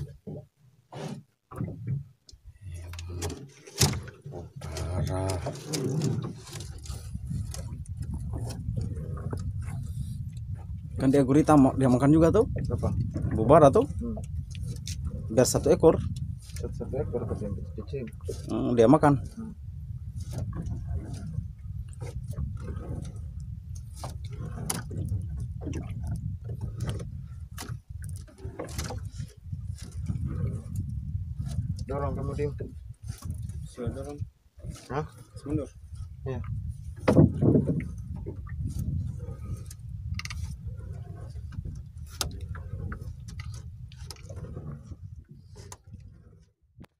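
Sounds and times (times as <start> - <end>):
steady low rumble: 4.5 - 28.3.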